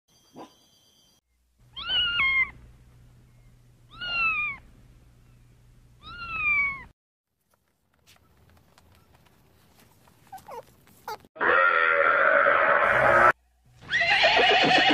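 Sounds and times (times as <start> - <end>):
cat meowing: 1.8 - 2.6, 3.9 - 4.6, 6.0 - 6.9.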